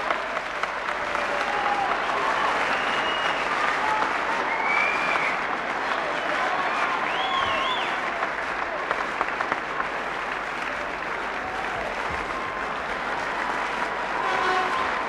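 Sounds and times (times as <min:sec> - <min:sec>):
crowd applauding and cheering: 0:00.0 - 0:15.0
crowd whistles: 0:01.1 - 0:08.2, 0:13.4 - 0:15.0.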